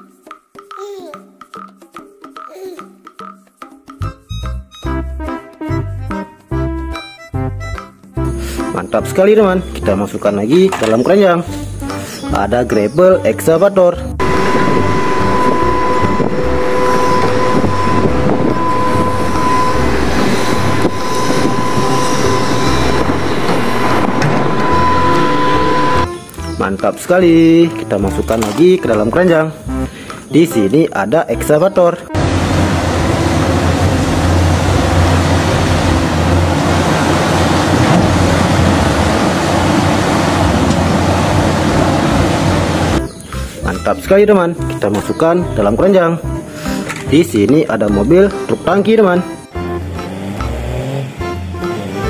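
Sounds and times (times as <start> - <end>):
excavator diesel engine running: 14.2 - 26.1, 32.2 - 43.5, 49.2 - 52.0
material handler mechanical din: 14.2 - 26.2, 32.2 - 43.1
steady high tone: 14.2 - 26.3
earth dumping into truck: 32.2 - 42.9.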